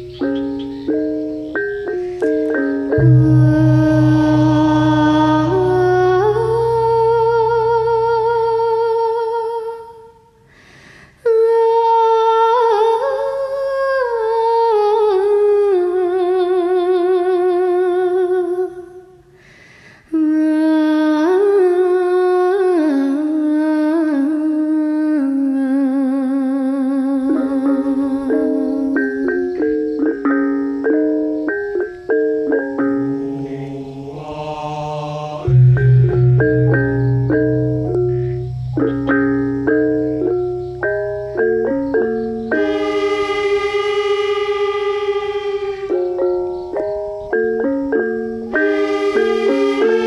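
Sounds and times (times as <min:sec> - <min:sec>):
person singing wordless melody: 0:00.0 - 0:10.4, 0:11.2 - 0:19.3, 0:20.1 - 0:30.2, 0:31.4 - 0:50.0
low drone: 0:01.7 - 0:09.0, 0:32.9 - 0:41.3, 0:42.5 - 0:46.9.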